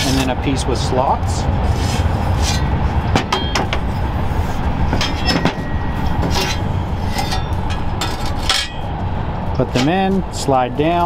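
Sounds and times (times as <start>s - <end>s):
steady low rumble: 0.0s - 11.0s
steel panels clinking and scraping: 1.8s - 9.0s, 9.6s - 10.1s.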